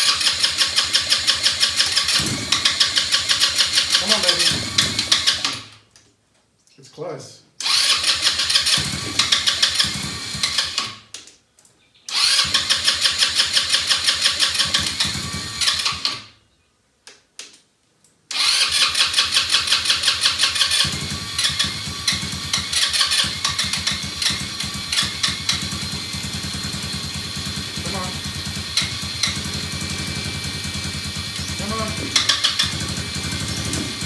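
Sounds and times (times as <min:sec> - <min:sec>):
engine sputtering: 0:00.0 - 0:05.6, 0:07.6 - 0:10.8, 0:18.3 - 0:34.0
engine cranking on electric starter: 0:00.0 - 0:05.8, 0:07.6 - 0:11.1, 0:12.1 - 0:16.3, 0:18.3 - 0:34.0.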